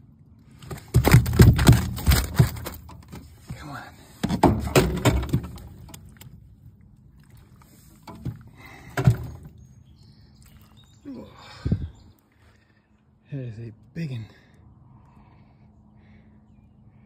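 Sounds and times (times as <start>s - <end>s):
fish knocking in a landing net: 0.6s - 3.2s, 4.2s - 6.3s, 8.0s - 9.5s.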